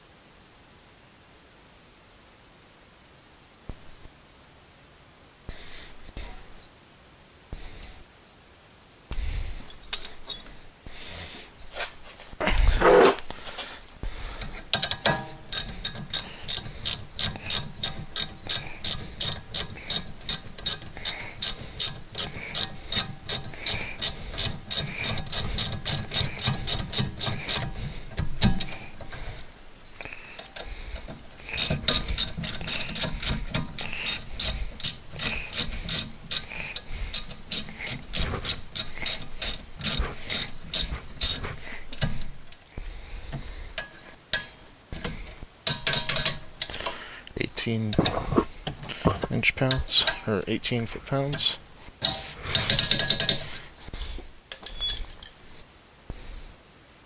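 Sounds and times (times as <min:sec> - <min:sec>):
socket ratchet clicking: 0:14.3 - 0:42.6, 0:45.0 - 0:47.0, 0:52.0 - 0:53.6.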